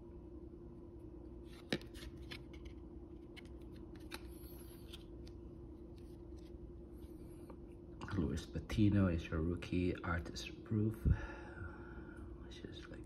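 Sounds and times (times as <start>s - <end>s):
cards rustling: 1.4s - 7.1s.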